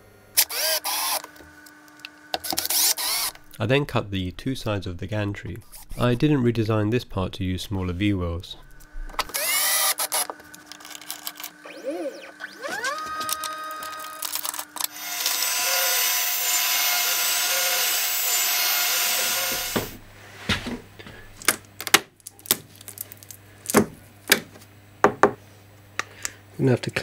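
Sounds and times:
router spindle whine: 0:00.4 - 0:01.4, 0:02.3 - 0:03.5, 0:09.0 - 0:20.0
router cutting plastic sheet: 0:02.4 - 0:03.4, 0:09.3 - 0:10.4, 0:12.3 - 0:20.0
low hum: 0:03.0 - 0:09.5.

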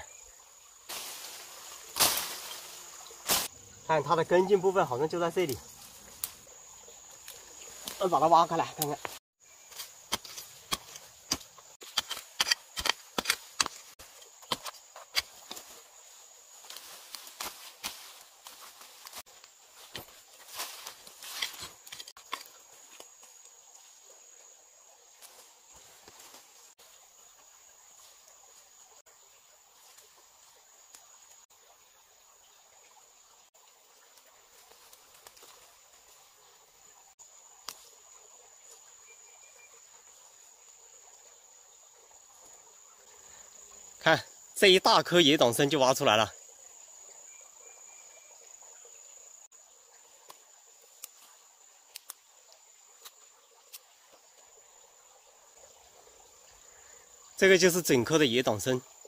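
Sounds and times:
crickets buzzing: 0:00.0 - 0:59.0
faint ticks: 0:51.9 - 0:54.5.

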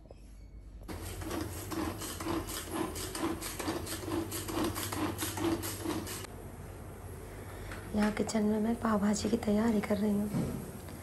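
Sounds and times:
vegetable chopper whirring: 0:00.9 - 0:06.3.

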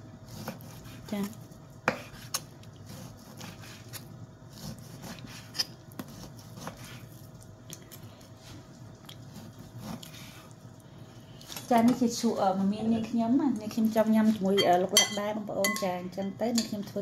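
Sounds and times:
knife slicing raw meat: 0:00.2 - 0:07.1.

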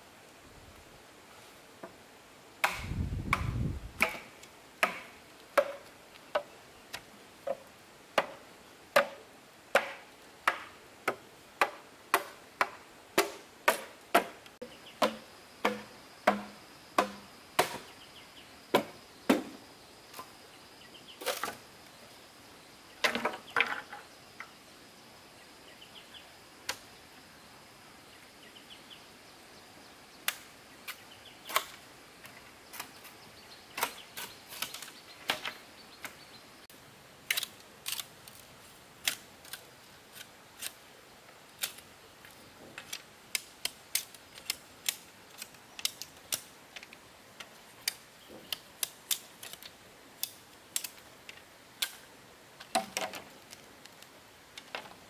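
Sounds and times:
chopping strikes on wood: 0:02.6 - 0:06.5, 0:08.2 - 0:08.4, 0:09.0 - 0:14.4, 0:15.0 - 0:17.9, 0:18.7 - 0:19.6.

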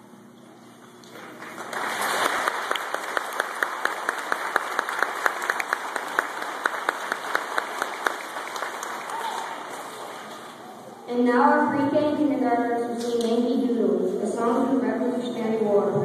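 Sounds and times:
audience applauding: 0:01.1 - 0:10.7.

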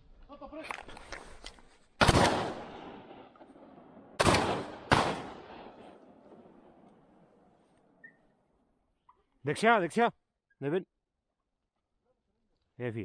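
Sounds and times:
shotgun shots with echo: 0:02.0 - 0:03.4, 0:04.2 - 0:06.0.

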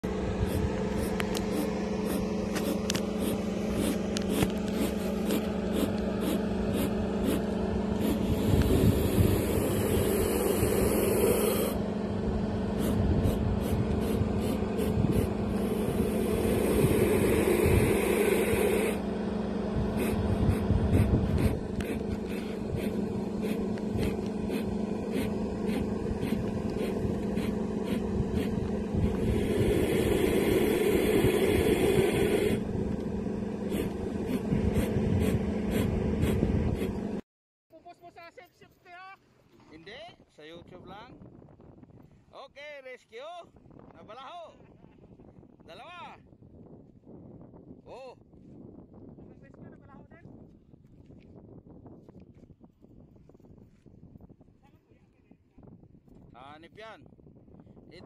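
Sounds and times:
engine idling: 0:00.0 - 0:37.2
wind noise on microphone: 0:00.0 - 0:37.2, 0:40.2 - 0:42.3, 0:43.4 - 0:58.0.

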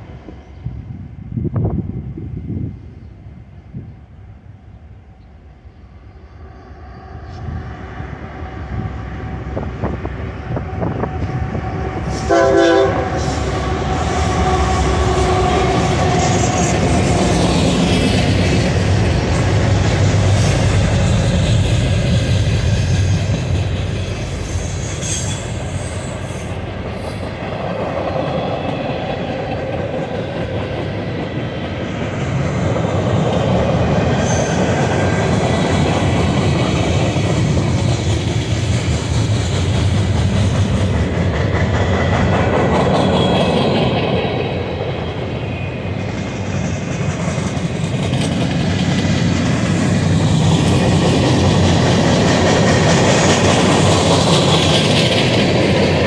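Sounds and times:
train horn blast: 0:11.9 - 0:16.6.

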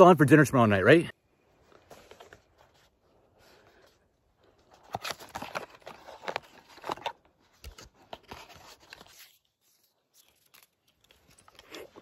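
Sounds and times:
cardboard box crackling and tearing: 0:04.8 - 0:12.0.

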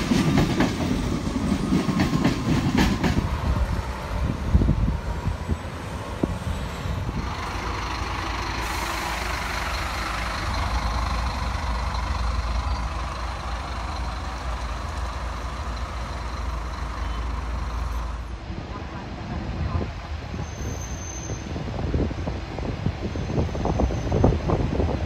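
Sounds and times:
diesel bus engine pulling away: 0:03.3 - 0:18.3.

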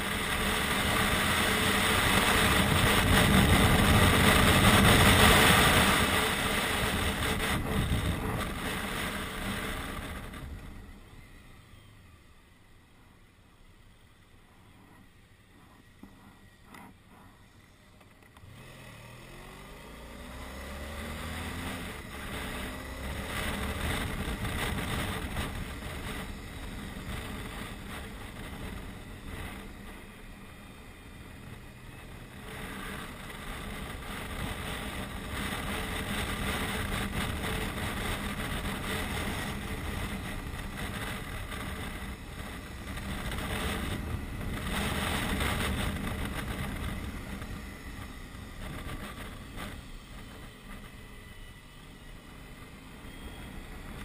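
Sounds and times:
wind rushing on microphone: 0:00.0 - 0:11.0, 0:21.0 - 0:30.1, 0:32.3 - 0:50.9
motorcycle engine pulling away: 0:18.3 - 0:51.2.

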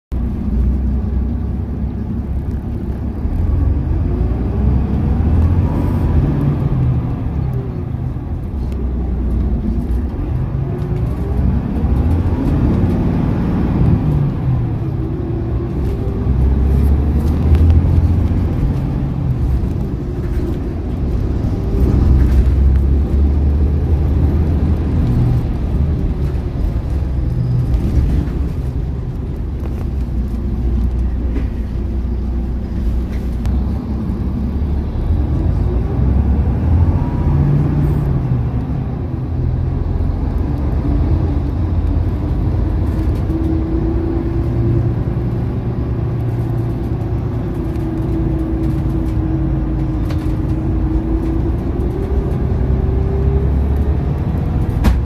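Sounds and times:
diesel coach engine: 0:00.1 - 0:55.0.

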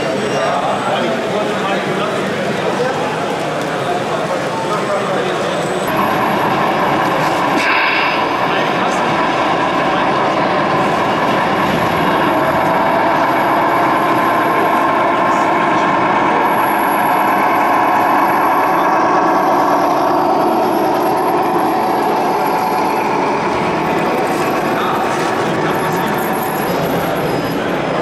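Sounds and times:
diesel truck engine running: 0:05.9 - 0:28.0.

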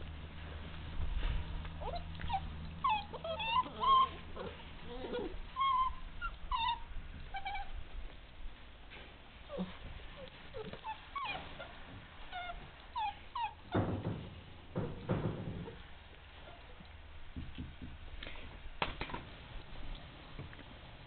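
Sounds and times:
puppies whimpering: 0:01.7 - 0:07.8, 0:09.4 - 0:13.8.

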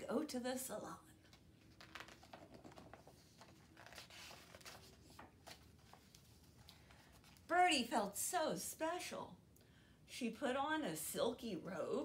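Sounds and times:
paper rustling: 0:01.2 - 0:07.5
soft ticks of pages turning: 0:01.2 - 0:07.5.

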